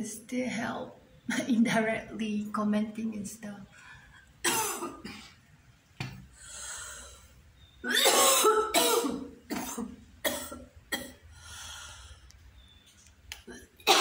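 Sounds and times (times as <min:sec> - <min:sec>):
person coughing: 0:04.4 - 0:05.4, 0:07.9 - 0:11.2.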